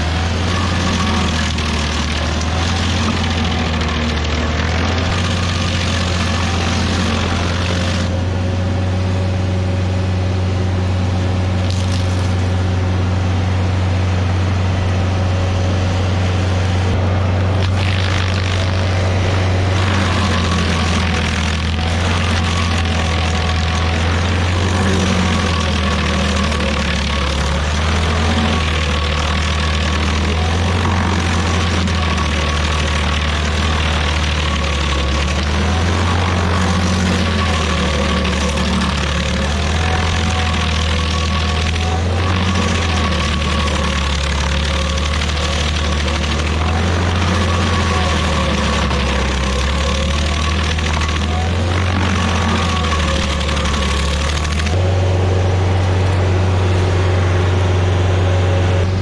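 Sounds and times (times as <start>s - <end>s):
stump grinder grinding: 0.0s - 59.0s.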